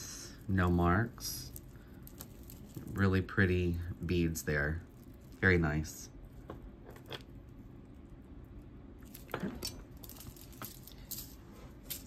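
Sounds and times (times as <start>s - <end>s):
chain necklace clinking: 9.0s - 12.0s.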